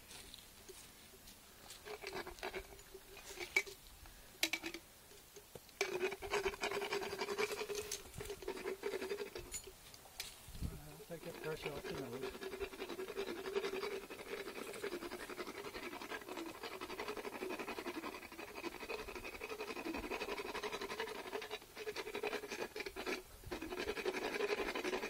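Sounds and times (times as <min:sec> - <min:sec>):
dental float rasping on teeth: 0:01.8 - 0:03.6, 0:05.8 - 0:09.5, 0:11.1 - 0:25.0.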